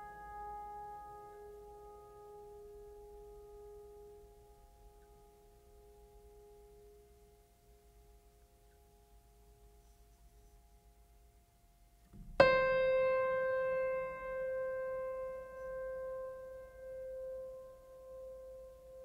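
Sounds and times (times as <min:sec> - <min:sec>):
struck piano-like note: 0:12.2 - 0:19.0.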